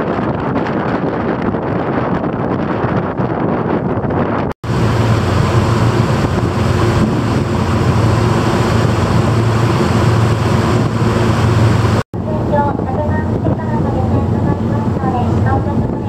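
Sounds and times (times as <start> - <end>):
wind rushing: 0.0 - 16.0
churned water: 4.6 - 16.0
ferry engine hum: 4.6 - 16.0.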